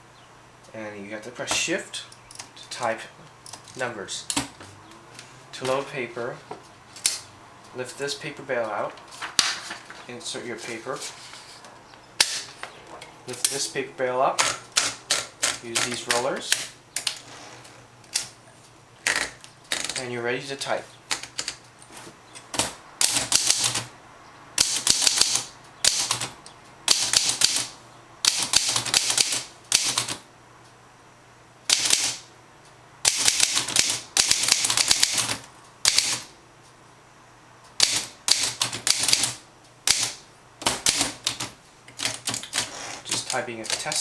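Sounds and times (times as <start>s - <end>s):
manual typewriter clacking: 14.4s - 17.2s, 22.5s - 23.9s, 24.6s - 30.2s, 31.7s - 32.3s, 33.0s - 36.3s, 37.8s - 44.0s.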